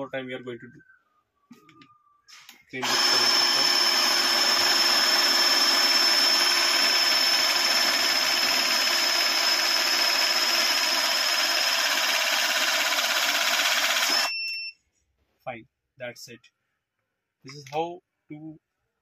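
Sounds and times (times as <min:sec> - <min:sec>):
hydraulic crimping tool whining: 0:02.8 - 0:14.3.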